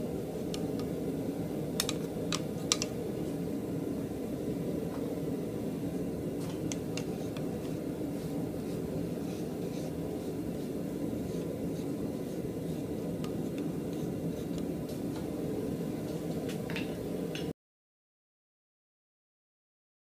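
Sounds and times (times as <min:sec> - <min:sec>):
forge air blower rushing: 0:00.0 - 0:17.4.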